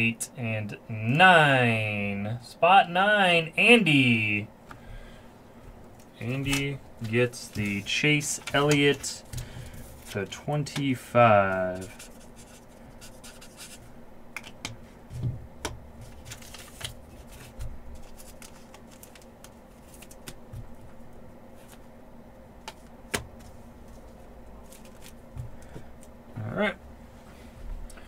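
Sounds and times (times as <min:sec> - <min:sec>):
faint steady hum: 0:00.0 - 0:28.0
hands handling small items: 0:05.9 - 0:10.8, 0:16.0 - 0:20.9, 0:22.6 - 0:26.1.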